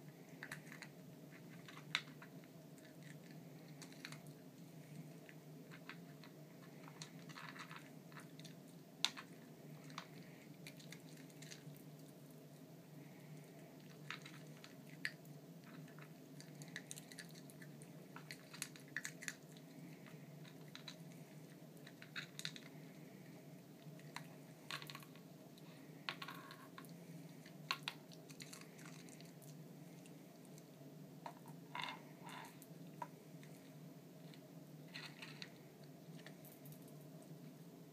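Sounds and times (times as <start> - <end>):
dog crunching kibble: 15.8 - 19.6.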